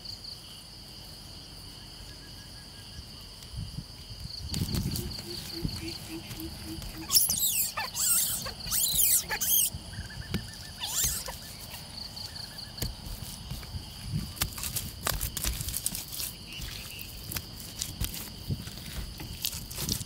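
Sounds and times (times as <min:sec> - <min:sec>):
insects chirping: 0:00.0 - 0:20.0
hands scraping wet mud: 0:12.8 - 0:20.0.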